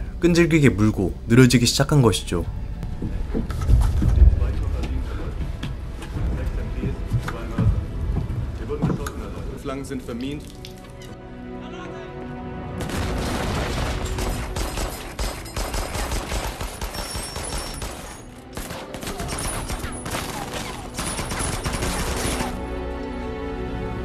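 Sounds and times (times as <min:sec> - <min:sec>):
orchestral score: 0:00.0 - 0:24.0
rapid automatic gunfire: 0:12.8 - 0:22.6.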